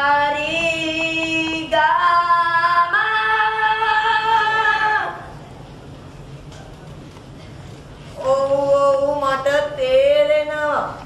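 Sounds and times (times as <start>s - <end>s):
young person singing: 8.2s - 11.0s.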